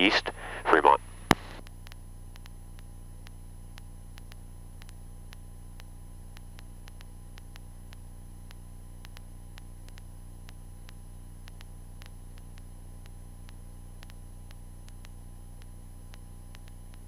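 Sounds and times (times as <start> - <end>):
faint hiss: 0.0 - 1.6
low electrical hum: 0.0 - 17.0
sharp electrical clicks: 1.1 - 17.0.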